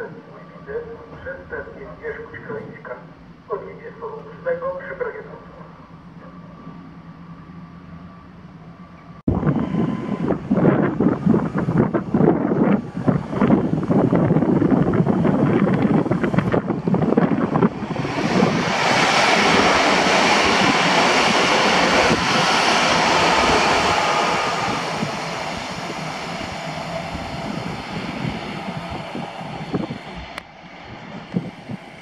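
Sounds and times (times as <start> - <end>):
electric train passing: 0.0 - 32.0
wind buffeting microphone: 9.3 - 32.0.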